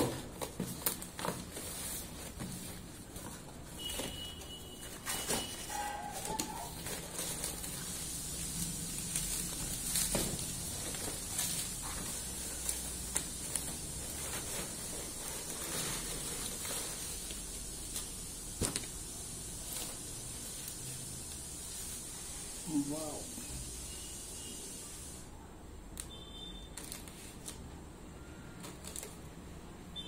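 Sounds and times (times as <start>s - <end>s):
shredded paper rustling: 4.8s - 18.9s.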